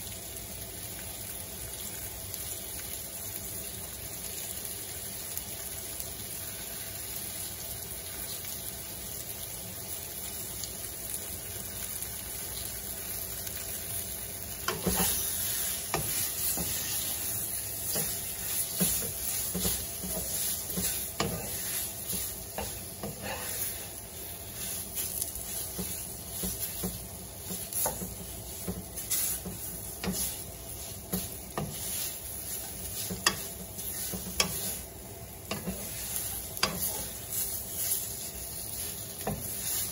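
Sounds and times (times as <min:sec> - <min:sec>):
shrimp sizzling in a pan: 0:00.0 - 0:39.9
wooden spatula scraping a pan: 0:14.6 - 0:39.9.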